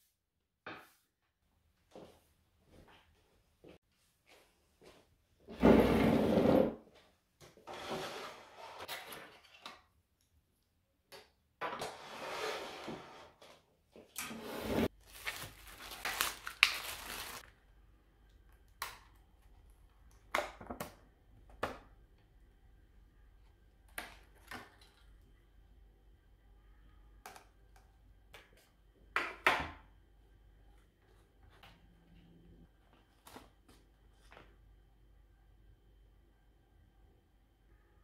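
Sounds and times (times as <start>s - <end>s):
plastic packaging rustling: 14.9s - 17.6s.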